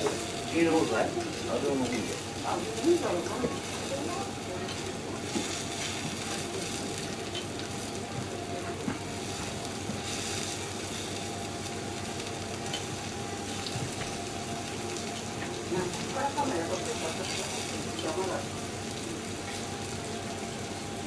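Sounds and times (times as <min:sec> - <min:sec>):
beef sizzling on griddle: 0:00.0 - 0:21.0.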